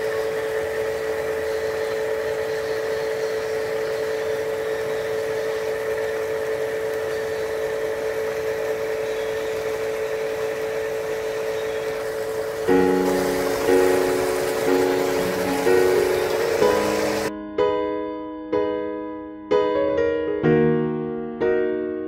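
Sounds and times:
steady machine hum: 0:00.0 - 0:17.3.

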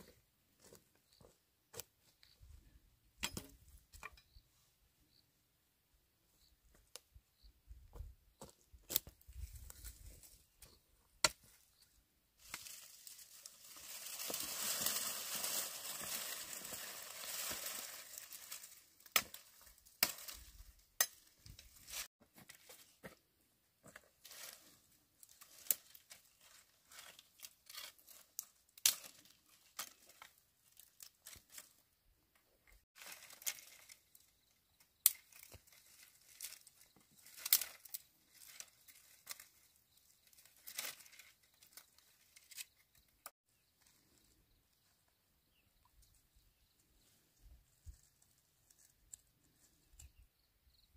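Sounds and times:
rustling brushwood: 0:08.4 - 0:23.2, 0:23.8 - 0:31.8, 0:32.7 - 0:44.2
dry twigs snapping and crackling: 0:12.4 - 0:22.1, 0:25.2 - 0:31.8, 0:33.0 - 0:34.3, 0:35.0 - 0:39.6, 0:40.3 - 0:43.3.

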